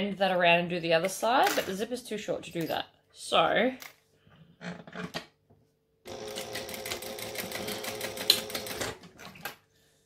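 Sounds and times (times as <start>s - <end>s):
sewing machine stitching: 6.1s - 9.5s.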